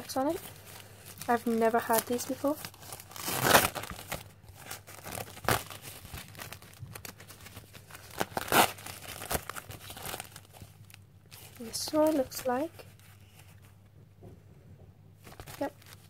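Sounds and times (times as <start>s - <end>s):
plastic wrapper crinkling: 0.0s - 13.6s, 15.2s - 16.0s.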